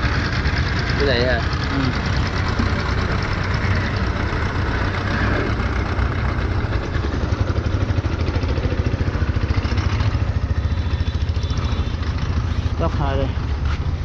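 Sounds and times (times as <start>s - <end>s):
diesel engine idling: 0.0s - 14.0s.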